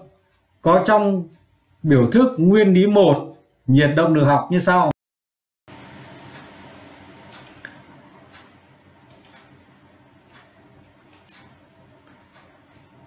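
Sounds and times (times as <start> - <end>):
low room hum: 5.7 - 13.0
computer mouse clicks: 7.3 - 9.6, 10.3 - 12.9.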